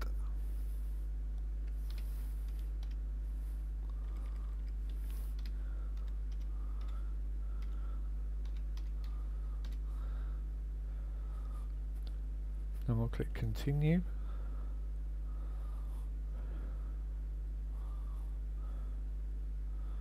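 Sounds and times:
steady low hum: 0.0s - 20.0s
keyboard typing clicks: 1.6s - 3.0s, 4.0s - 7.0s, 8.4s - 9.8s.

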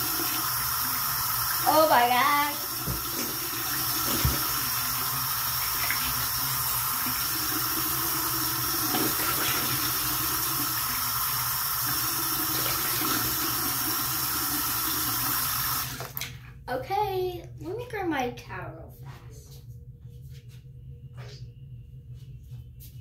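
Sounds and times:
tap running into basin: 2.7s - 11.1s.

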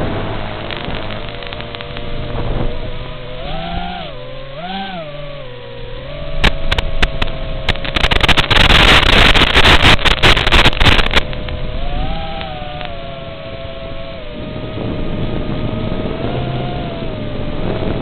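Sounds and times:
crackling static with clicks: 0.0s - 2.7s, 6.2s - 13.0s
quadcopter propellers buzzing: 0.0s - 18.0s.

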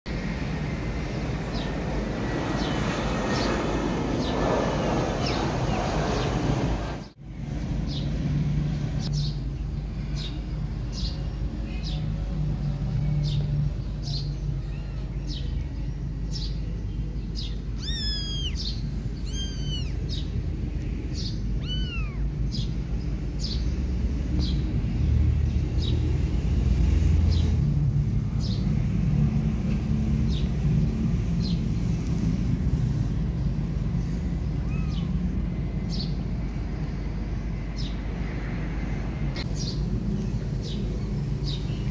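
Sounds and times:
steady low rumble: 0.1s - 41.9s
bird chirping: 10.2s - 22.8s, 34.4s - 35.2s
kitten mewing: 17.7s - 20.2s, 21.5s - 22.5s, 34.5s - 35.3s.

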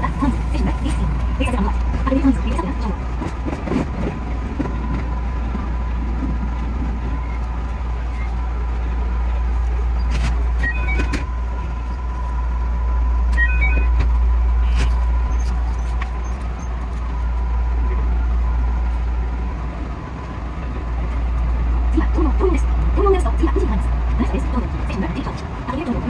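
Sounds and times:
train running rumble: 0.0s - 26.0s
short high beeps: 10.6s - 11.2s, 13.4s - 14.0s.

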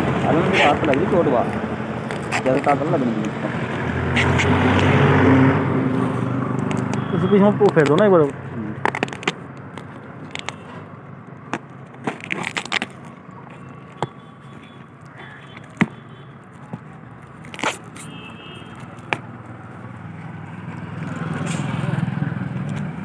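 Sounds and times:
plastic wrapping tearing and crackling: 6.5s - 10.8s, 11.4s - 15.8s, 16.5s - 19.9s.

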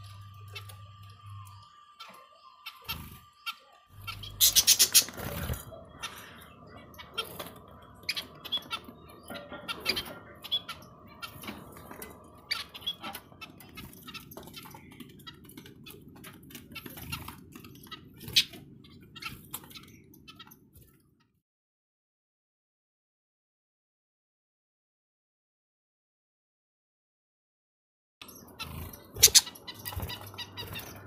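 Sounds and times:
budgerigars chirping: 0.3s - 20.6s, 28.4s - 31.0s.

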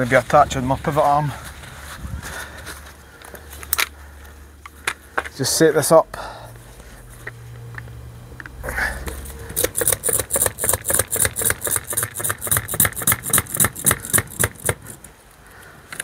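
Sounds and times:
hand pump suction cup strokes: 8.6s - 15.1s.

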